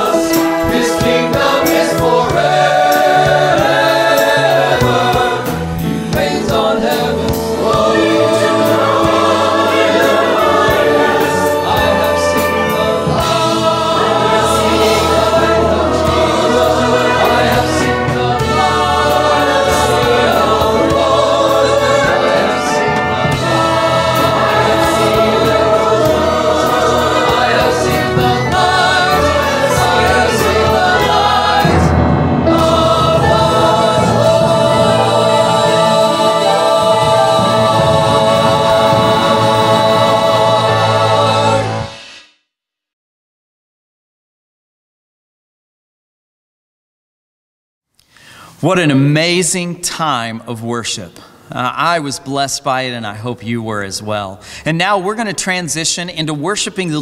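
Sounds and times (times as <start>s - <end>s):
orchestral accompaniment: 0.0s - 42.1s
choir singing a worship song: 0.0s - 42.2s.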